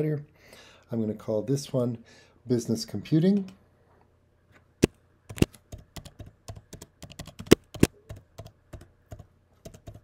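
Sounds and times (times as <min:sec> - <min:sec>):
keyboard key clicks: 0:05.3 - 0:08.5.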